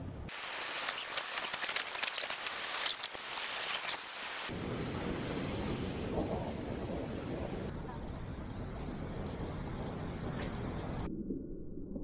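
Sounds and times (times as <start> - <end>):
steady sea rush: 0.3 - 11.0.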